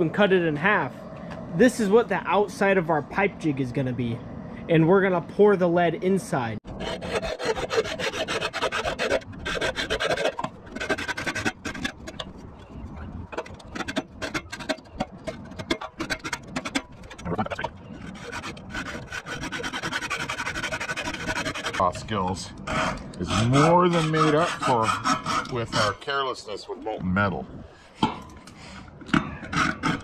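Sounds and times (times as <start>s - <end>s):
hacksaw cutting copper pipe: 6.7s - 21.9s, 22.5s - 26.0s, 29.0s - 30.0s.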